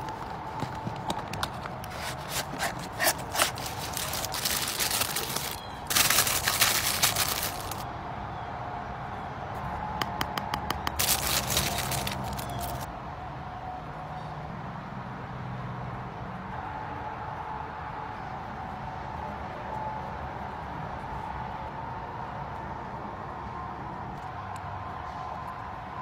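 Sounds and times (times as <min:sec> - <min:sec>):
cardboard packaging clicking and sliding: 0:00.0 - 0:07.8, 0:10.9 - 0:12.9
tissue paper crinkling: 0:01.5 - 0:07.8, 0:11.0 - 0:12.9.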